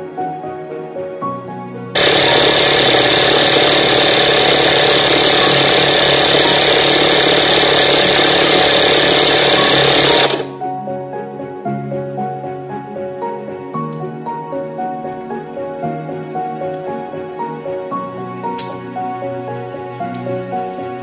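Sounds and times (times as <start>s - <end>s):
tyre inflator running: 2.0s - 13.8s.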